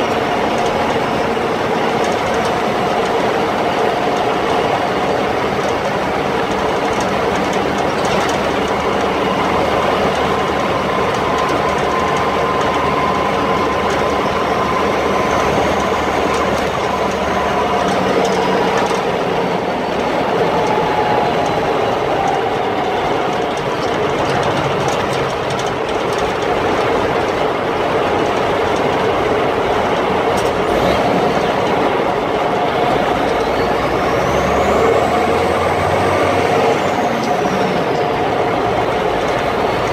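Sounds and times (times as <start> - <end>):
faint whine drifting in pitch: 0.0 - 25.9
higher rising whine: 0.0 - 25.9
truck driving from inside the cab: 0.0 - 39.9.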